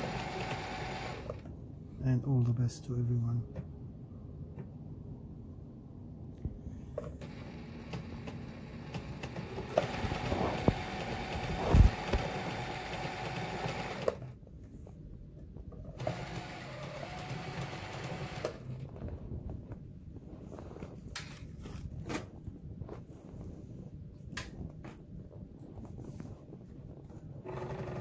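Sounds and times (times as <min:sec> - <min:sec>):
sewing machine motor whine: 0:00.0 - 0:01.4, 0:07.2 - 0:14.3, 0:16.0 - 0:18.8, 0:27.4 - 0:28.0.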